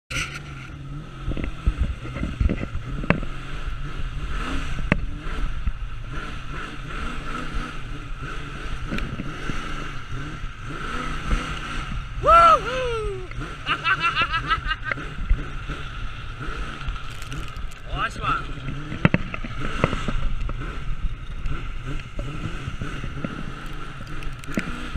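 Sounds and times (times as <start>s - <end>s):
wind rumble on microphone: 0.1s - 13.5s
car engine revving: 0.1s - 24.9s.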